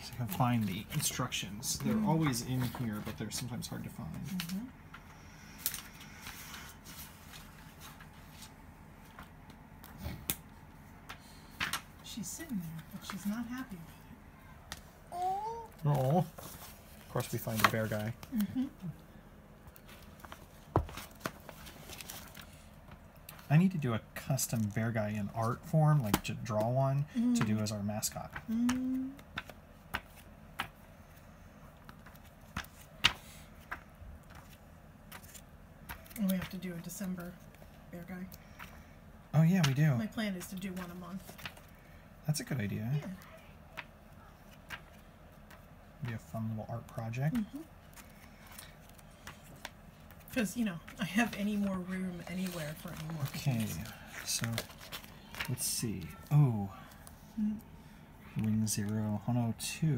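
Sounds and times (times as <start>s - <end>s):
magazine pages flipping: 0.0s - 4.6s, 5.4s - 10.4s, 15.8s - 18.5s, 19.6s - 23.7s, 24.3s - 26.8s, 29.2s - 38.8s, 39.6s - 41.8s, 43.1s - 57.2s
plastic packaging rustling: 19.7s - 22.8s, 51.1s - 57.0s.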